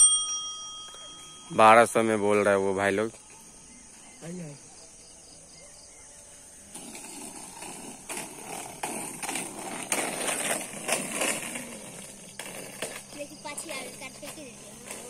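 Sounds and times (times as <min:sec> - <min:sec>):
roller-skate wheels on asphalt: 0:05.6 - 0:15.0.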